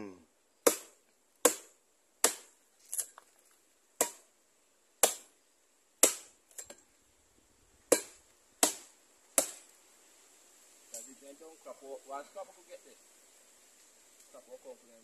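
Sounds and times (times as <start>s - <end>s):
machete chopping hollow trunk: 0.6s - 3.1s, 4.0s - 4.3s, 5.0s - 5.3s, 6.0s - 6.4s, 7.9s - 9.7s.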